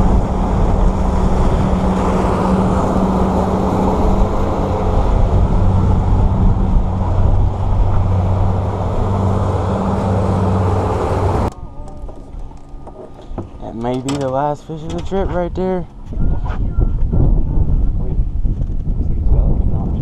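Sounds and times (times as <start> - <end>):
wind and water rushing: 0.0 - 11.6
outboard motor running: 0.0 - 13.6.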